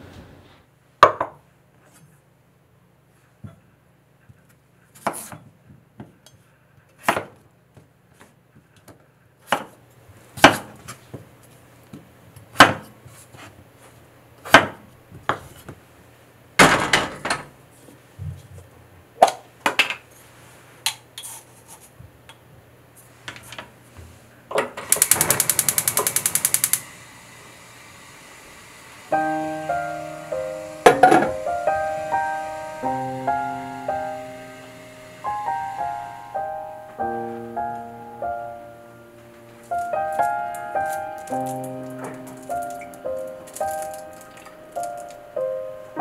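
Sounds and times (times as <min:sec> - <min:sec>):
gas burner hissing: 0:24.7 - 0:45.7
gas igniter ticking: 0:24.8 - 0:26.9.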